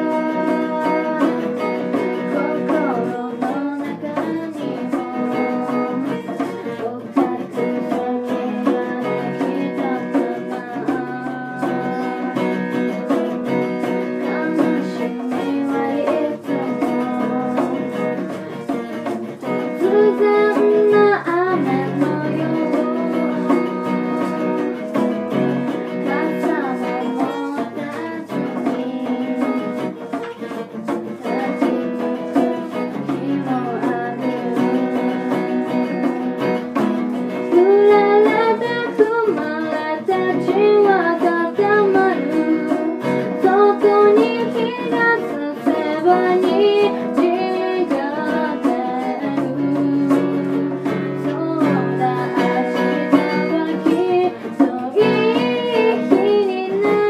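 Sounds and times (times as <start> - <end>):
djembe hand drum: 0.0 - 57.0
girl singing: 0.0 - 57.0
strummed acoustic guitar: 0.0 - 57.0.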